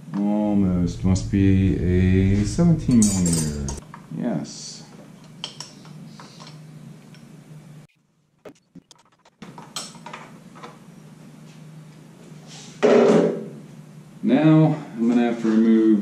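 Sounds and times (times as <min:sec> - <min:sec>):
low hum: 0:00.4 - 0:03.8.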